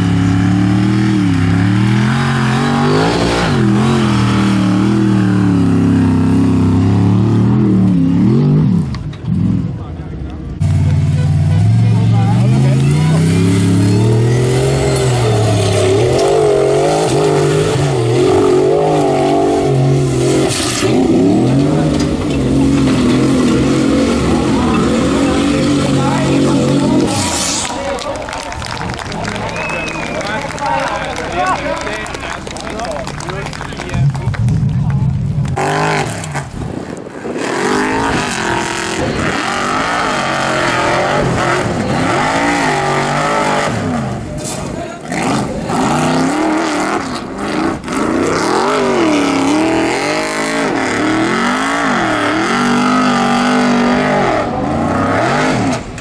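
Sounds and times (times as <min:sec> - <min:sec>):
buggy engine revving: 0:00.0 - 0:56.0.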